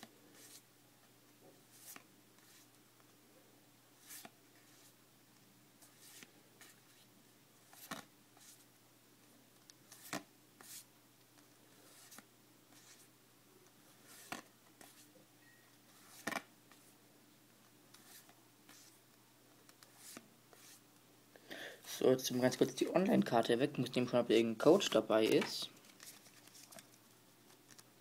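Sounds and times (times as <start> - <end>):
cards clicking as shuffled: 7.7 - 8.1, 16.1 - 16.4.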